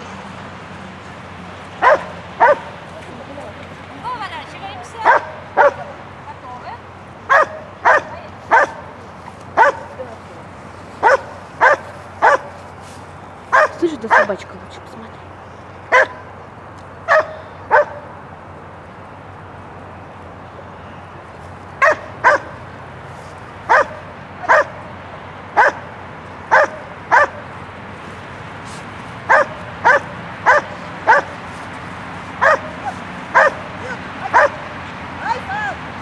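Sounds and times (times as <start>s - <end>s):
dog barking: 1.8s - 2.7s, 5.0s - 6.0s, 7.3s - 8.9s, 9.6s - 10.0s, 11.0s - 12.6s, 13.5s - 14.3s, 15.9s - 16.2s, 17.1s - 18.1s, 21.8s - 22.6s, 23.7s - 24.8s, 25.6s - 25.9s, 26.5s - 27.4s, 29.3s - 31.4s, 32.4s - 34.7s.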